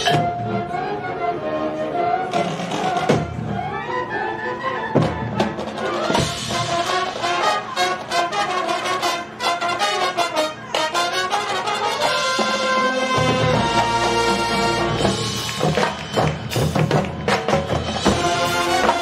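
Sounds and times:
percussion hits: 0:00.0 - 0:00.4, 0:13.2 - 0:19.0
marching band brass: 0:00.0 - 0:19.0.

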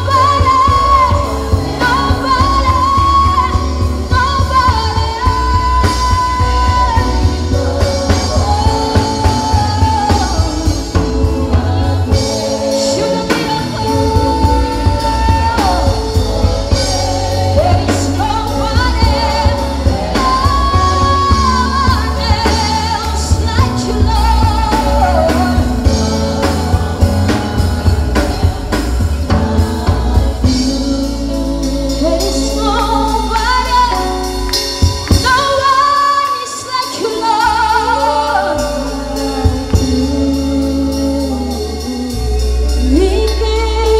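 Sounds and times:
band with drums bass keyboards: 0:00.0 - 0:43.9
person singing slow melody: 0:35.7 - 0:43.9.

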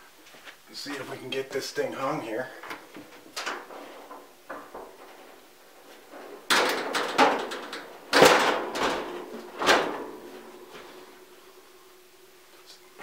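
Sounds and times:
heater housing knocking and scraping: 0:02.6 - 0:11.5.

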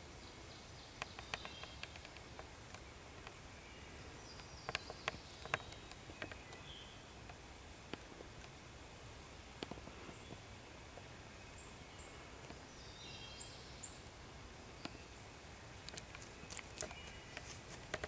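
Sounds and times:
dry leaves crackling underfoot: 0:15.8 - 0:18.0.

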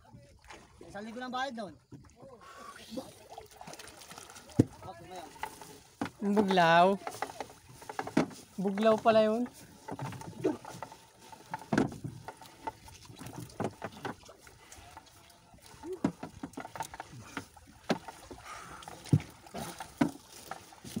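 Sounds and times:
water splashing and dripping: 0:01.9 - 0:21.0
net knocking against boat hull: 0:04.5 - 0:14.3, 0:15.8 - 0:21.0.

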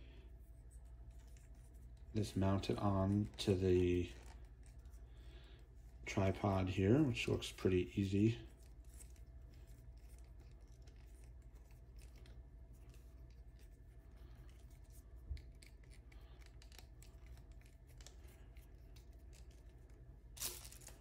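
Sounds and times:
low steady hum: 0:00.0 - 0:21.0
light scratches and clicks: 0:05.9 - 0:21.0.

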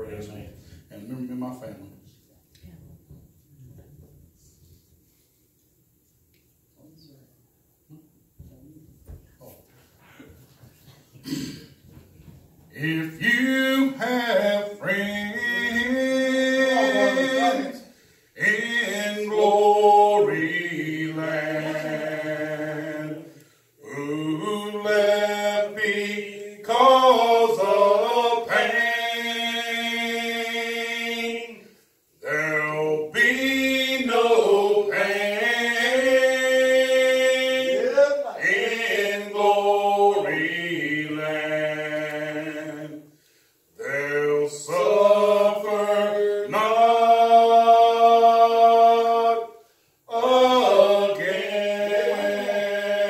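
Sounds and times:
unaccompanied hymn singing: 0:11.9 - 0:53.0.

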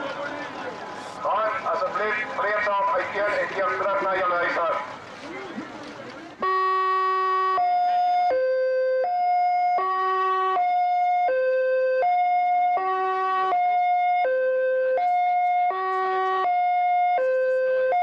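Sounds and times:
two-tone police siren: 0:06.4 - 0:18.0.

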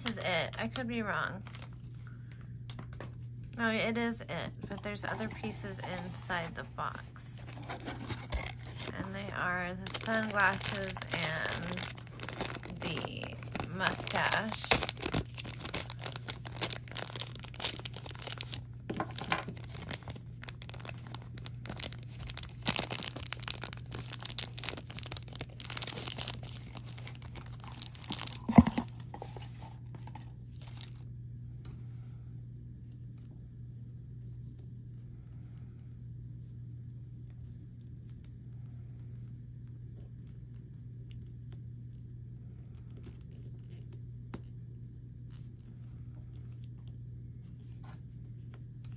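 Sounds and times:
plastic packaging crinkling and tearing: 0:00.0 - 0:02.0, 0:04.6 - 0:31.0, 0:43.0 - 0:44.5
steady low hum: 0:00.0 - 0:48.9.

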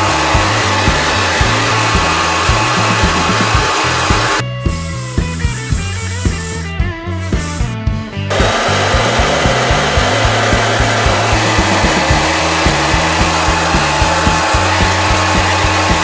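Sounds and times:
hair dryer blowing: 0:00.0 - 0:04.4, 0:08.3 - 0:16.0
background music with steady beat: 0:00.0 - 0:16.0.

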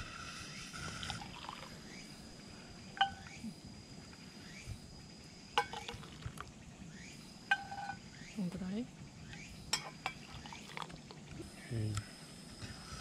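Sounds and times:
liquid pouring: 0:01.0 - 0:01.7, 0:10.2 - 0:11.2
ladle clinking against metal mugs: 0:05.6 - 0:06.0, 0:09.7 - 0:10.4.

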